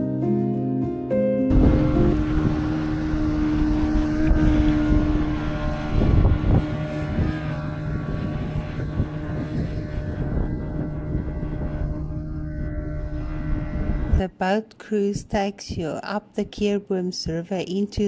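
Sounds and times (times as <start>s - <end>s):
rushing noise: 1.5s - 14.2s
boat engine humming: 1.5s - 15.9s.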